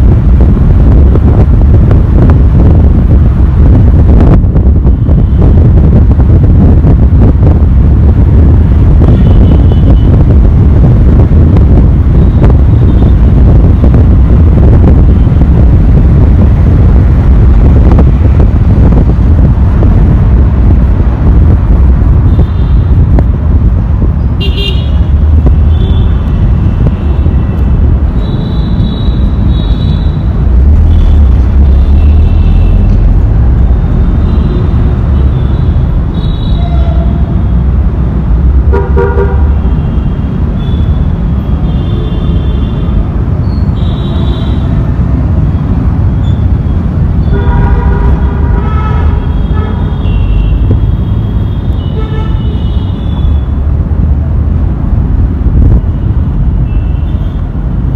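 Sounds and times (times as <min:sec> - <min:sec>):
road noise: 0:00.0 - 0:57.9
wind on microphone: 0:00.0 - 0:57.9
vehicle horns honking: 0:09.1 - 0:10.1, 0:24.4 - 0:25.1, 0:38.7 - 0:42.9, 0:47.2 - 0:53.4
low-pitched horn: 0:36.4 - 0:37.4.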